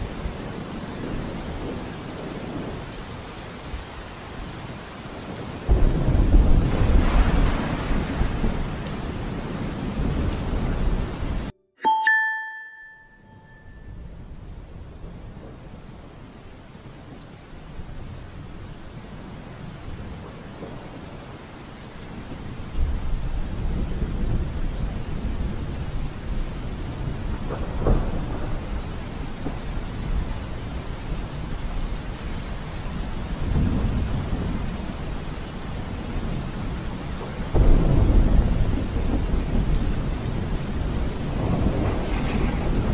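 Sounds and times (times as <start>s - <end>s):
steady rain: 0.0s - 11.5s, 13.5s - 42.9s
thunder rolling: 5.7s - 11.5s, 27.0s - 30.7s, 37.5s - 42.9s
short ringing tone: 11.8s - 14.0s.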